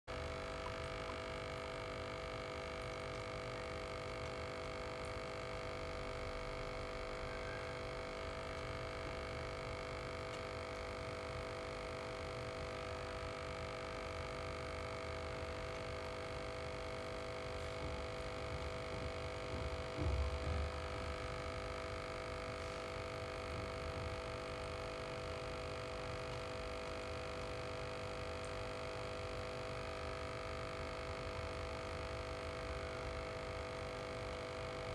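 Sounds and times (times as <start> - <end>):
aquarium air pump humming: 0.1 - 34.9
low thump: 19.6 - 20.9.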